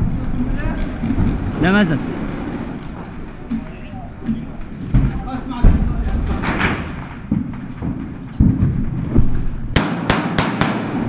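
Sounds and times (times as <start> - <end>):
dull thumps and knocks: 3.5 - 9.6
sharp gunshots: 9.7 - 11.0.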